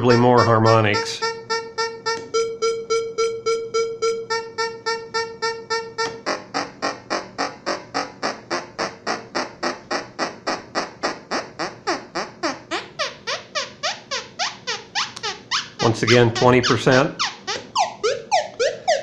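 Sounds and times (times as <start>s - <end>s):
synthetic beeps: 0.0s - 8.1s, 17.8s - 19.0s.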